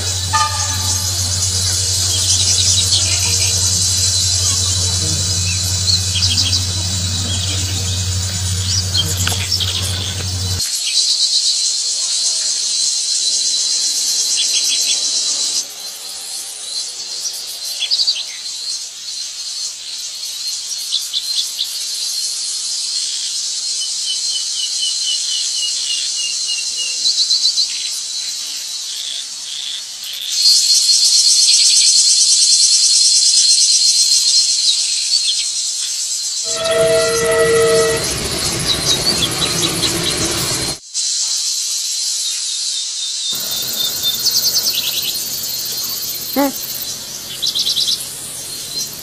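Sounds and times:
bird chirping: 0.0 - 10.6, 43.4 - 49.0
steady high hiss: 0.0 - 10.6, 43.4 - 49.0
train rumbling past: 0.0 - 10.6, 36.5 - 40.8, 43.4 - 49.0
insect chorus: 0.0 - 27.2, 27.8 - 49.0.

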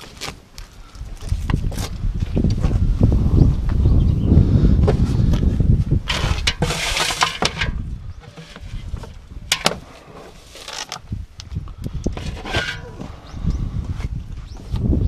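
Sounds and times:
fishing net rustling and scraping: 6.1 - 11.2, 12.2 - 13.1.

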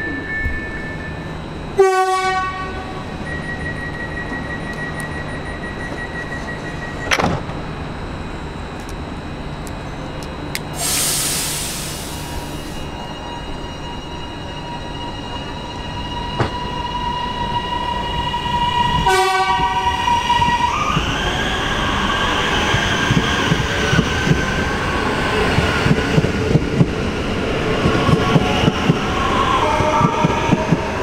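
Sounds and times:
train horn tone: 1.8 - 3.2, 18.9 - 20.0, 29.6 - 30.8.

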